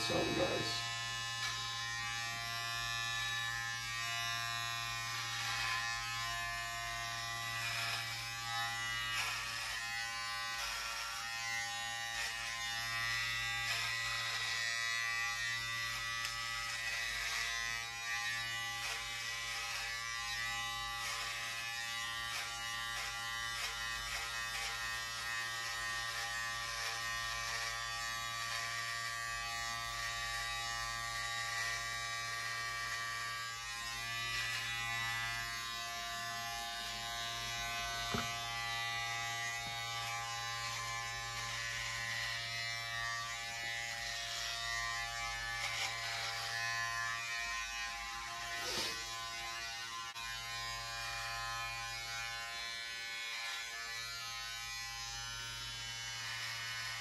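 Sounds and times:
electric hair clippers buzzing: 0:00.0 - 0:57.0.

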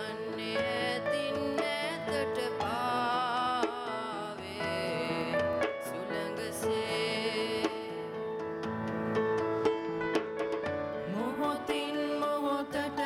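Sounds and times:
boy singing: 0:00.0 - 0:08.0, 0:11.1 - 0:13.0
piano chords: 0:00.0 - 0:13.0.

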